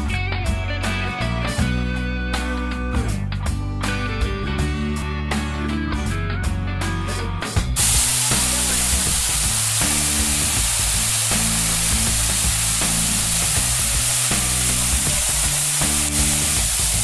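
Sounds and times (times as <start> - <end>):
waterfall hissing: 7.8 - 17.0.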